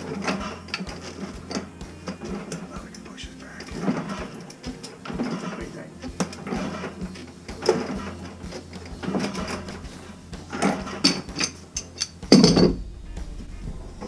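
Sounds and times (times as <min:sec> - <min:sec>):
pipe wrench scraping metal: 0:00.0 - 0:03.0, 0:03.6 - 0:12.8
metal clank: 0:03.8 - 0:14.0.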